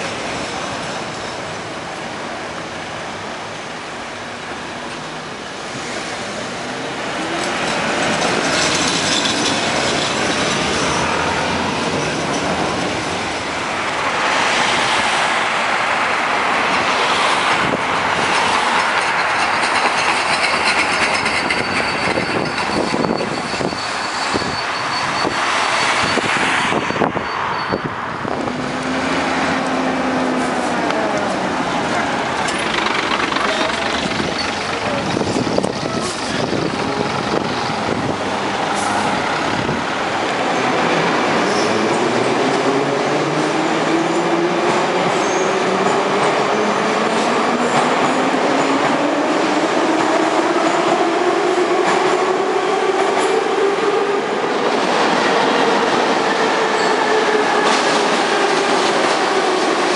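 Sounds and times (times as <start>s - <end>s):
tram wheels rolling on rails: 0.0s - 59.9s.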